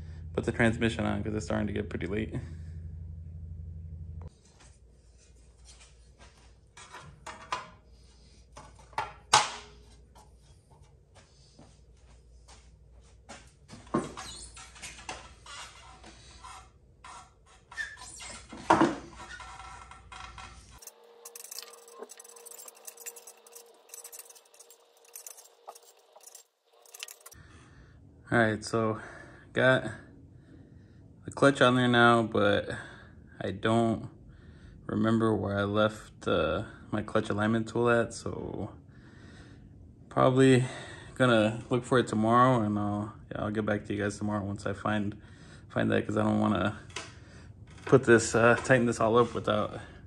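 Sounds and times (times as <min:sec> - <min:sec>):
faint steady hum: 0:00.0 - 0:13.9, 0:19.3 - 0:50.0
metal parts clicking and scraping: 0:19.1 - 0:27.4.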